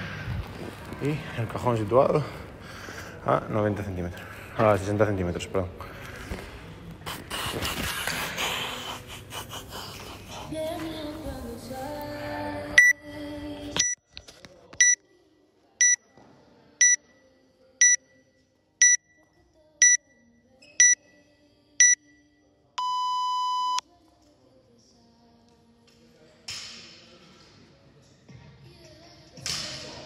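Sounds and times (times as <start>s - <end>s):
long lower beep: 21.8s - 23.8s
short high beeps: 22.8s - 23.8s.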